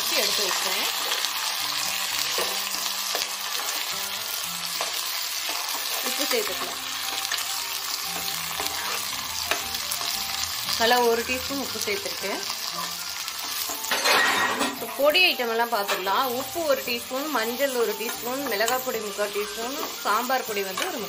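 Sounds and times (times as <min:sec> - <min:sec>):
vegetables sizzling in hot oil: 0:00.0 - 0:21.0
metal ladle scraping pan: 0:13.6 - 0:15.0.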